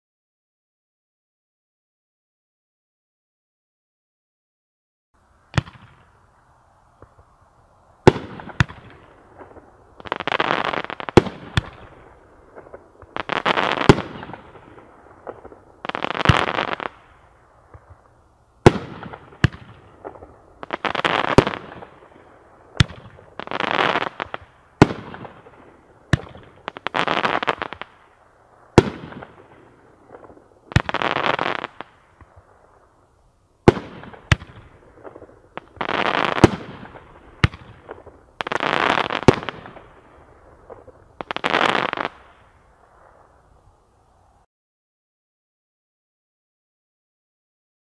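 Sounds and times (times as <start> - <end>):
firework crackling: 5.2 - 44.5.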